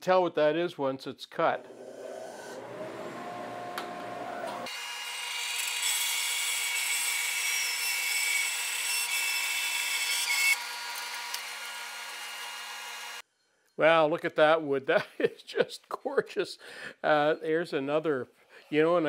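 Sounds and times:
bandsaw cutting through log: 1.6 - 13.2.

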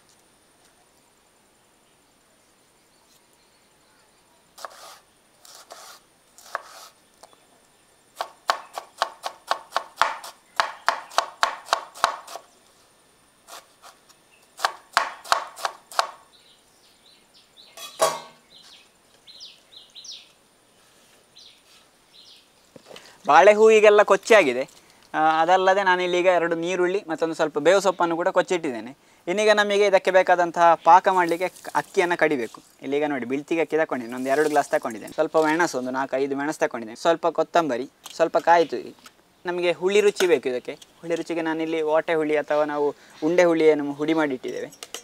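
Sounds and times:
knife chopping on wooden board: 8.2 - 12.4, 14.6 - 16.2.

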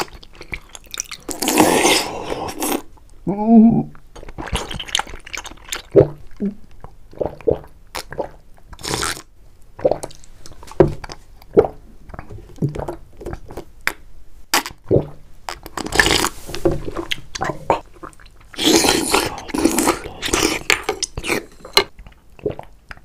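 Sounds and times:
gulping swallows: 17.0 - 22.7.

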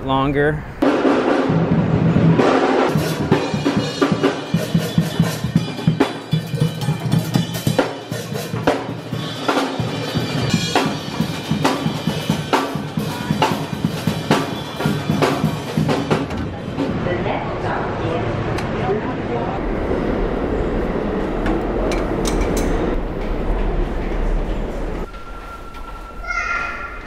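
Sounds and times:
drum kit playing fast: 0.8 - 16.4.

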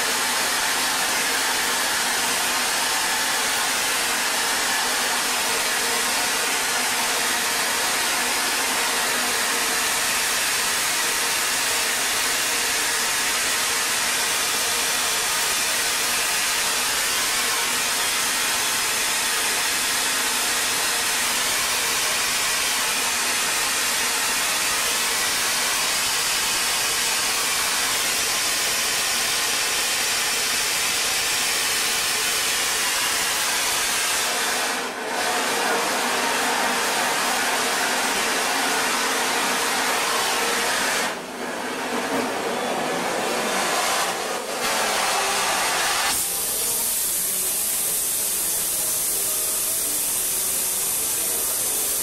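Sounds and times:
steady hiss: 45.2 - 52.0.

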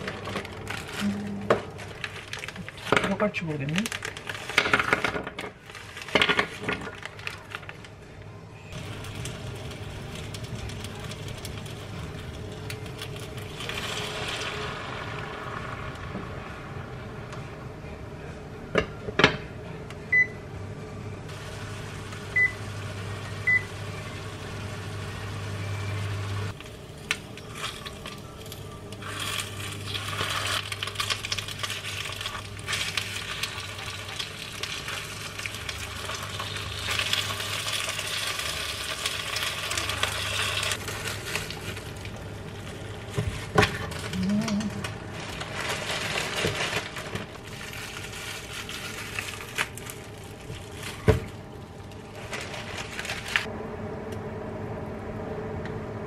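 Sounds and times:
low hum: 8.2 - 56.0
food sizzling in pan: 8.8 - 17.2, 21.3 - 43.5
cooktop beeps: 20.1 - 20.4, 22.3 - 26.5.

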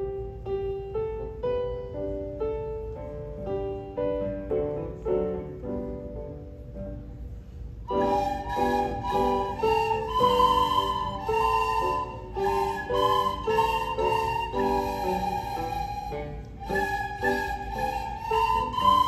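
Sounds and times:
piano notes and chords: 0.0 - 19.0
flutophones playing a melody: 7.9 - 19.0.

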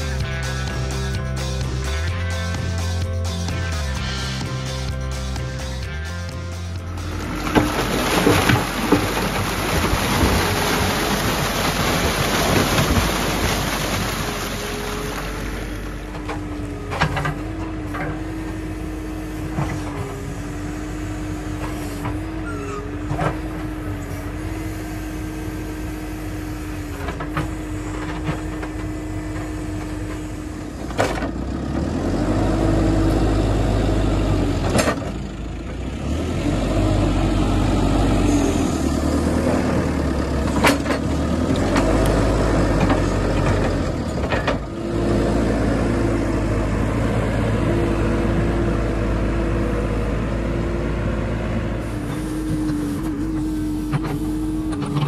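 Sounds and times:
diesel engine running: 0.0 - 55.0.

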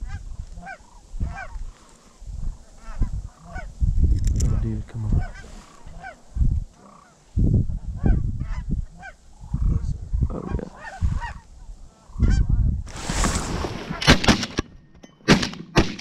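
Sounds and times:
geese honking: 0.0 - 1.8, 2.6 - 3.7, 5.1 - 7.2, 8.0 - 12.4
shotgun blasts: 14.0 - 14.6, 15.3 - 16.0.

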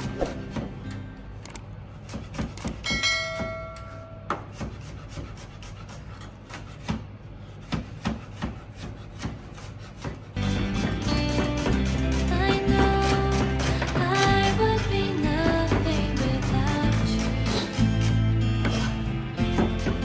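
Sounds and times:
music: 0.0 - 1.6, 10.4 - 20.0
knife scraping garlic: 4.4 - 13.9.

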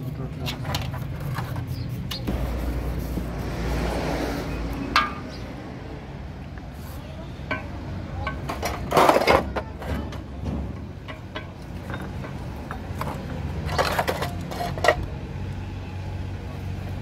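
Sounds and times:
metal gears clinking and rattling: 11.0 - 15.0.

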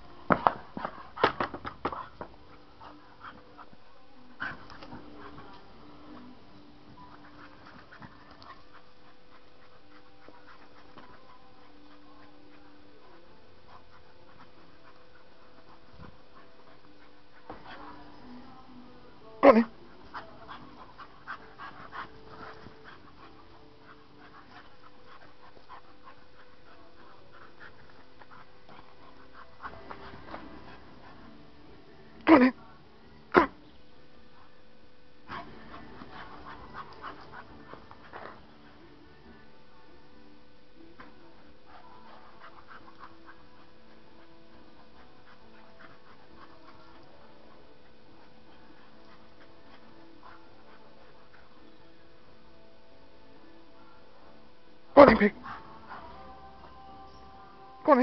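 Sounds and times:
dogs panting: 0.0 - 58.0
dogs scuffling on grass: 4.3 - 32.1, 35.2 - 52.7.

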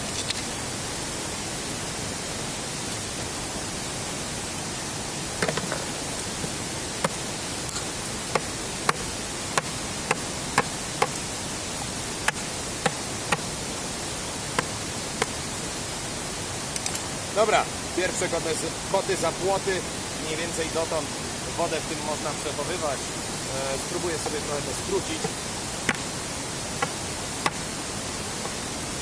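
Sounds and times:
steady hiss: 0.0 - 29.0
machete chopping bamboo: 5.4 - 5.8, 8.3 - 11.2, 12.2 - 13.5, 14.6 - 15.4, 25.2 - 26.1, 26.8 - 27.6.

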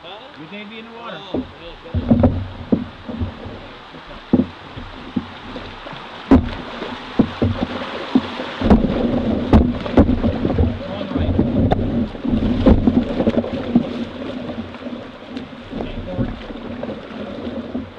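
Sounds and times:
rushing water: 0.0 - 17.9
sharp knocks: 1.2 - 14.0.

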